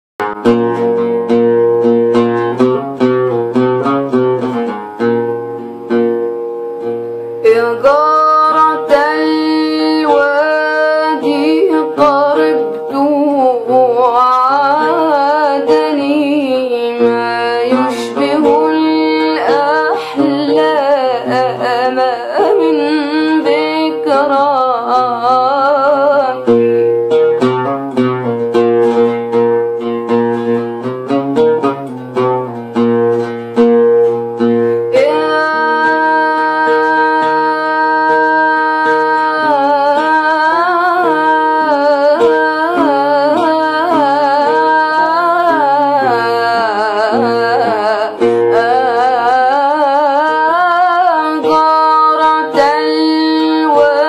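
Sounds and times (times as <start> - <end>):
plucked string instrument: 0.2 - 54.0
woman singing ornamented melody: 7.4 - 27.8, 34.8 - 54.0.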